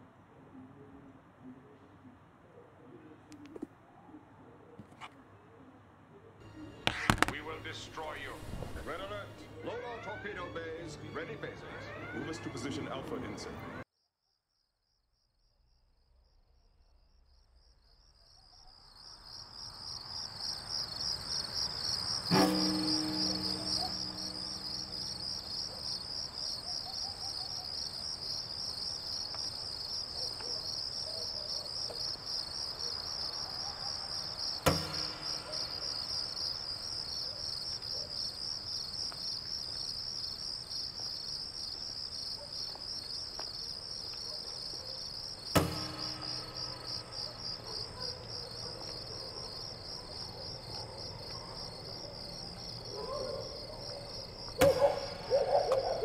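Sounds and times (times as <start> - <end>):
crickets chirping: 6.4 - 13.0, 14.0 - 56.0
sudden thuds: 6.9 - 8.9, 34.6 - 36.8, 45.5 - 48.0.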